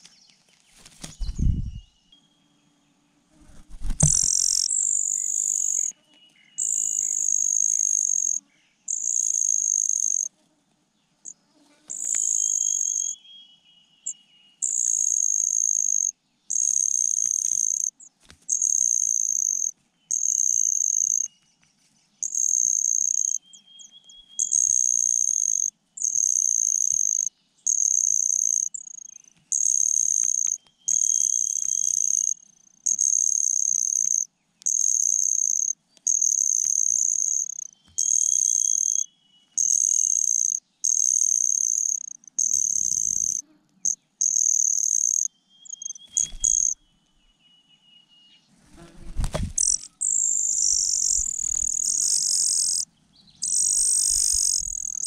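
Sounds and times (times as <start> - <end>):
cricket trilling: 3.6 - 6.0, 6.6 - 10.3, 11.9 - 13.2, 14.0 - 21.3, 22.2 - 46.8, 48.8 - 55.0
faint thin chirps: 20.1 - 55.0.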